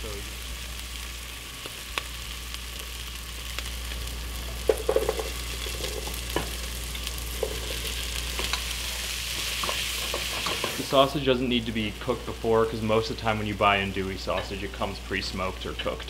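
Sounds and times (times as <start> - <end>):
vegetables sizzling in oil: 0.0 - 16.0
vegetables clattering into pot: 4.6 - 6.6.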